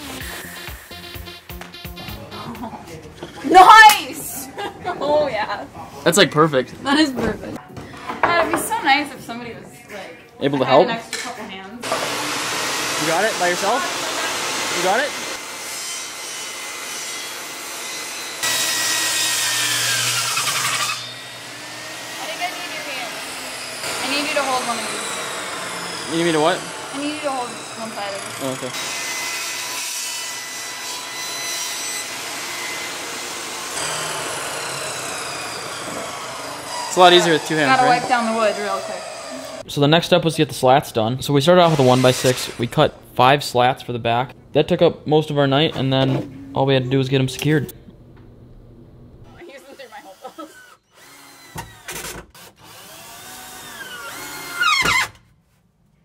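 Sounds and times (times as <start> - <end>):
table saw cutting wood: 0.0 - 1.2, 11.8 - 39.7, 41.4 - 42.9, 49.4 - 55.2
cordless drill driving a screw: 32.5 - 39.6, 49.7 - 55.2.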